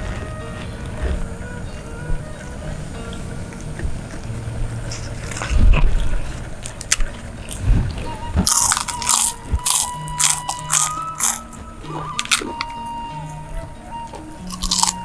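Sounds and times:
crackers crunching: 3.0 - 12.8, 14.0 - 15.0.

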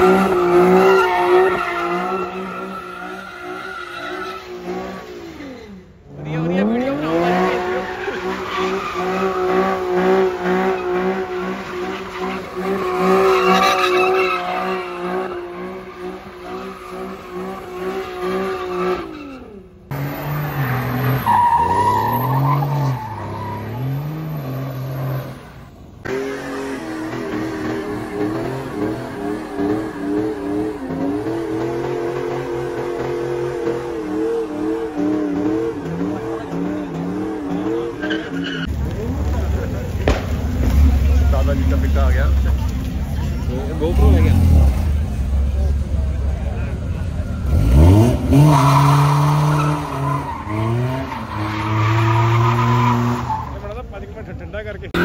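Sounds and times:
car engine revving high: 26.0 - 39.4, 47.4 - 53.6
tyres squealing: 27.3 - 38.7.

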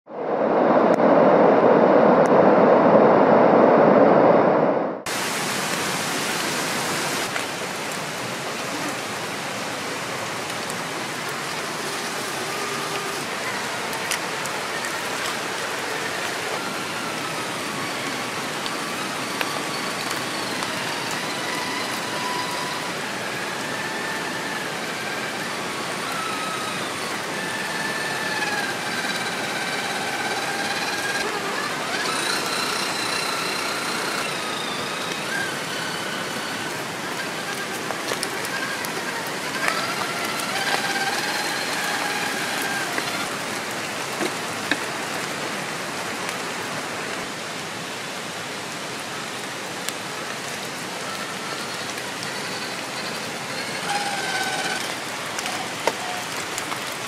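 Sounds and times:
rain hiss: 5.1 - 57.0
electric motor whine: 11.1 - 45.4, 50.4 - 56.5.

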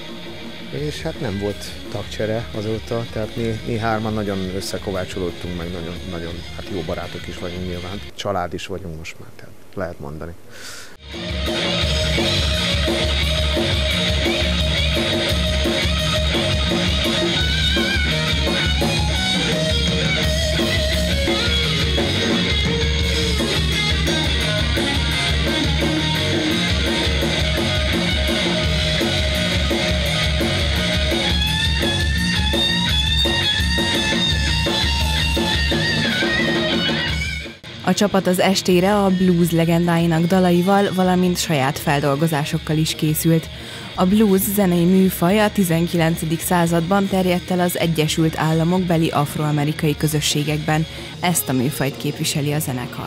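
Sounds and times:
bass guitar line: 0.0 - 8.1, 11.0 - 53.0
electric guitar: 0.0 - 8.1, 11.0 - 53.0
guitar lead line bending: 0.0 - 8.2, 11.0 - 53.0
drum kit: 11.0 - 53.0.

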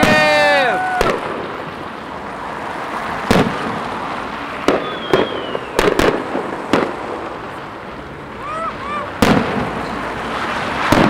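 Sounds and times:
background rush: 0.0 - 11.0
fireworks bangs: 0.0 - 11.0
faint falling whistle: 4.8 - 5.8.

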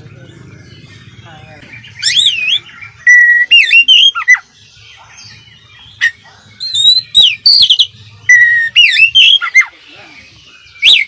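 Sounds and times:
bird singing whistled phrases: 1.9 - 4.6, 6.0 - 11.0.

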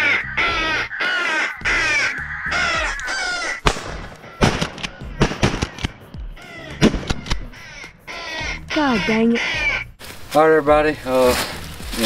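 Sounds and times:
crows cawing: 0.0 - 10.0
shotgun shots: 3.6 - 6.1, 6.8 - 7.5.

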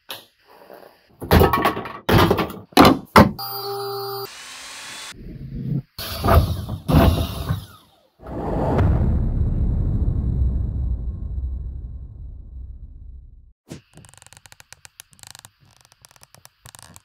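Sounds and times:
motor whine: 3.4 - 5.3
hiss: 4.2 - 5.2.

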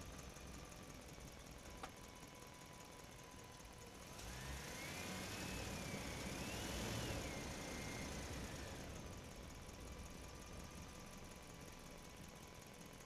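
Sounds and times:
vehicle engine passing by: 4.2 - 8.9.

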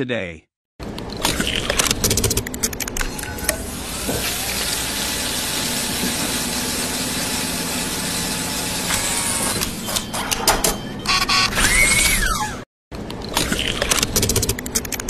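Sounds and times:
machinery whirring: 0.8 - 10.3
sharp clicks: 0.9 - 3.3, 13.1 - 15.0.

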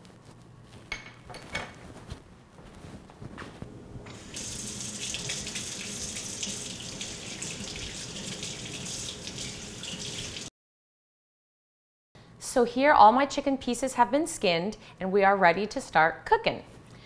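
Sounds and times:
faucet running into sink: 4.1 - 10.5
hands rinsed under water: 4.1 - 10.5.

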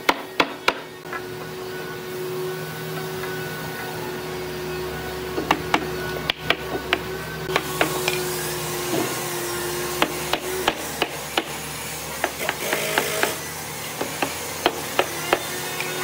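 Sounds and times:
steady hum: 0.0 - 16.0
hammer knocking wooden frame: 0.1 - 0.9.

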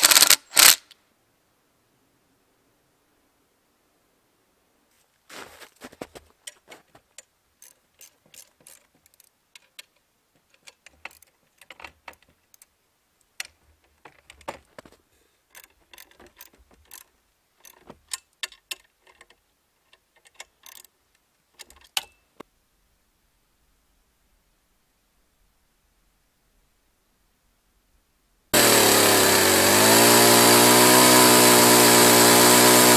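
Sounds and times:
metal frame clicking and clinking: 15.5 - 20.9.

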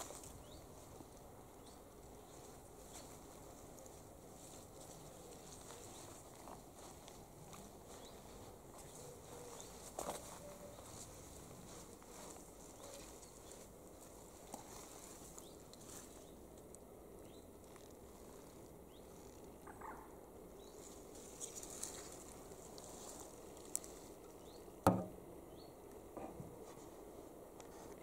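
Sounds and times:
sharp knock: 24.9 - 25.2.

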